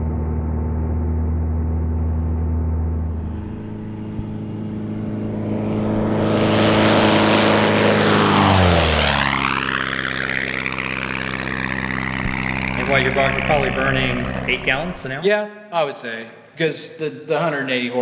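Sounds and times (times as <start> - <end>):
light plane passing low: 2.9 - 15.2.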